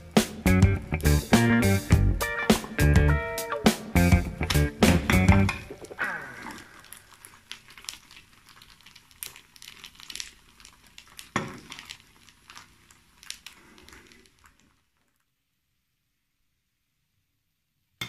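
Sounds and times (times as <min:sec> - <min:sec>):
oil crackling and spitting: 0:00.0 - 0:03.0, 0:04.0 - 0:15.4.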